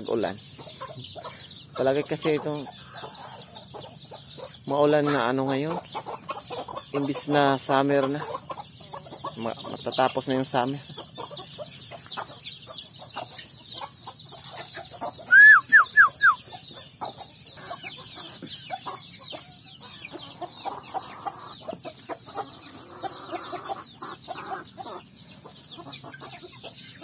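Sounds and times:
chicks peeping: 0.0s - 27.0s
hens clucking: 0.0s - 27.0s.

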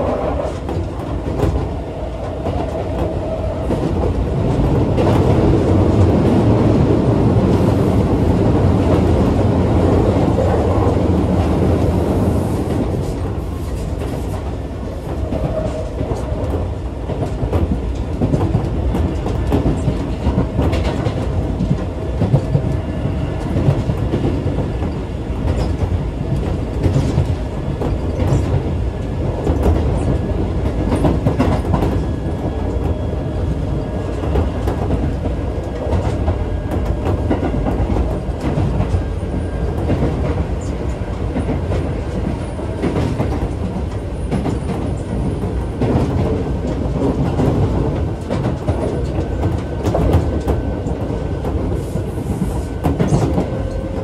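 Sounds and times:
train wheels rumbling: 0.0s - 54.0s.

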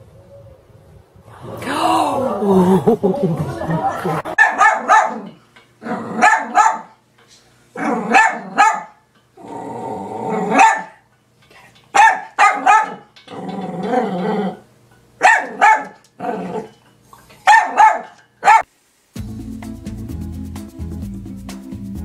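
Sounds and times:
dog barking: 4.3s - 5.3s, 6.2s - 7.0s, 7.8s - 9.0s, 10.4s - 11.0s, 12.0s - 13.1s, 15.2s - 16.0s, 17.4s - 18.7s
dog growling: 5.2s - 6.2s, 7.8s - 8.6s, 9.4s - 10.6s, 13.3s - 14.7s, 16.2s - 16.8s.

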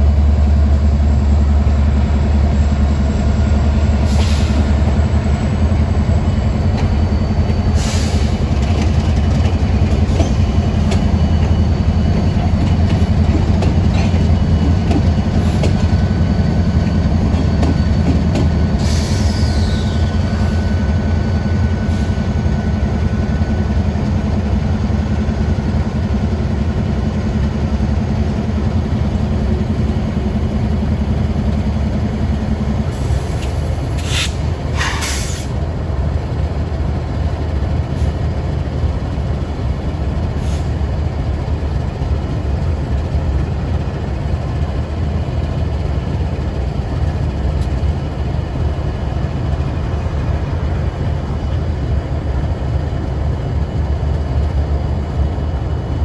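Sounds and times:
diesel locomotives engine rumble: 0.0s - 56.0s
brief high hisses: 34.0s - 35.5s.

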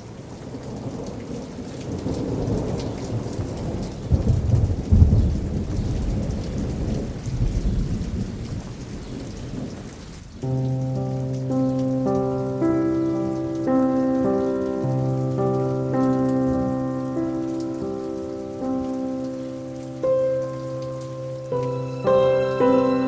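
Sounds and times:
steady rain: 0.0s - 23.0s
rolling thunder: 0.4s - 10.3s
soft music with held notes: 10.4s - 23.0s.

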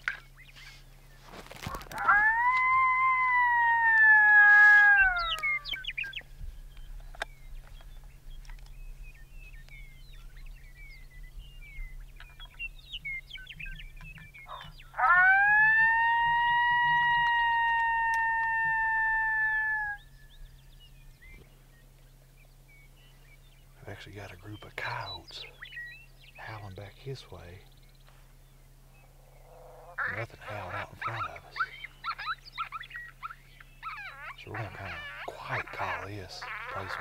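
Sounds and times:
coyote howling: 1.4s - 6.1s, 14.4s - 20.2s, 29.2s - 37.0s
distant coyote yips: 1.6s - 5.9s, 14.4s - 20.1s, 29.5s - 37.0s.

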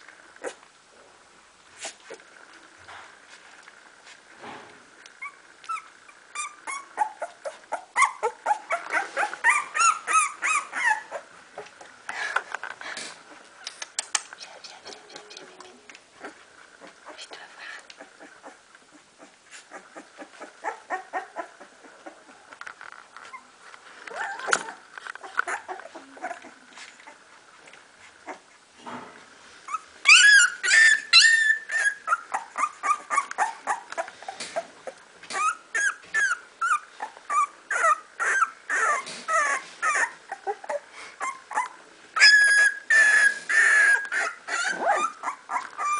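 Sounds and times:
puppy whimpering and yelping: 5.2s - 11.7s, 18.0s - 22.4s, 24.1s - 27.2s, 29.7s - 45.9s.

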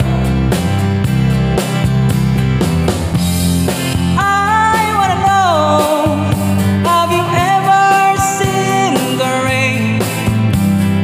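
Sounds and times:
man singing: 0.0s - 0.9s, 4.1s - 10.4s
rock music backing track: 0.0s - 11.0s.

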